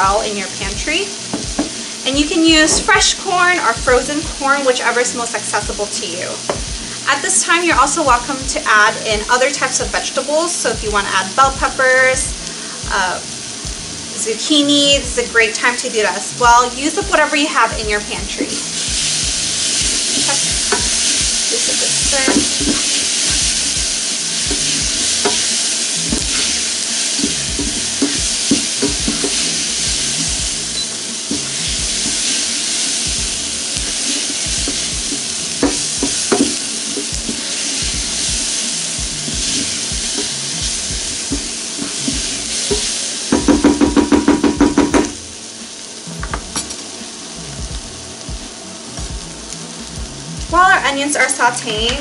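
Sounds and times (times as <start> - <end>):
onions sizzling in a saucepan: 0.0 - 52.0
wooden spoon scraping a pan: 24.4 - 30.4.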